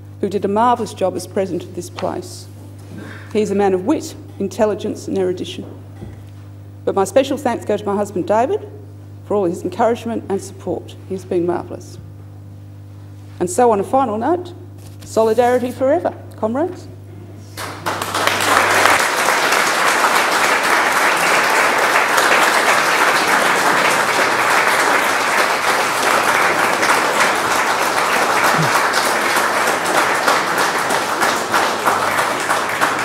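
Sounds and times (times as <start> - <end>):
applause: 17.6 - 33.0.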